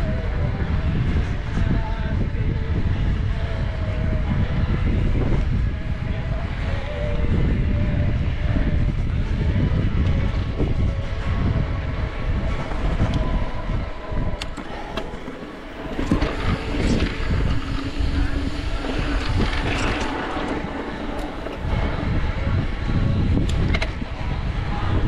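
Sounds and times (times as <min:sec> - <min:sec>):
wind buffeting microphone: 0:00.0 - 0:25.0
bike rattling: 0:08.7 - 0:25.0.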